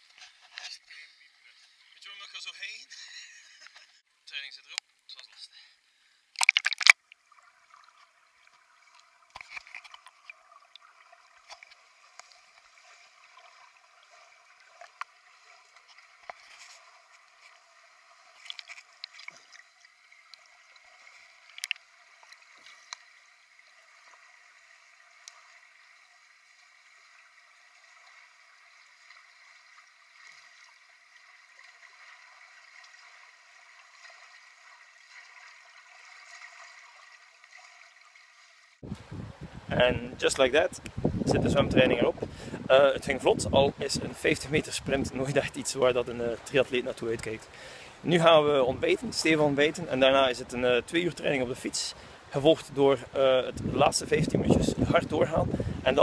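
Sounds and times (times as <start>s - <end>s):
underwater clicks and bubbling: 6.3s - 17.6s, 18.3s - 23.2s
faint underwater hiss: 46.3s - 52.4s.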